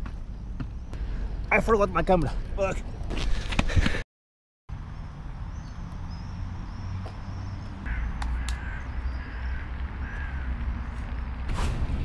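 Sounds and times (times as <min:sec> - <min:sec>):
low rumble of distant traffic: 0:04.7 - 0:12.0.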